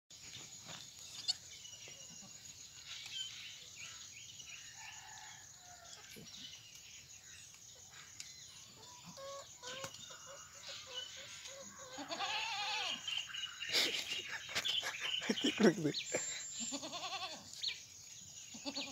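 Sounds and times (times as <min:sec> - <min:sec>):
goats bleating: 0:11.9 - 0:13.0, 0:16.6 - 0:17.5, 0:18.5 - 0:18.9.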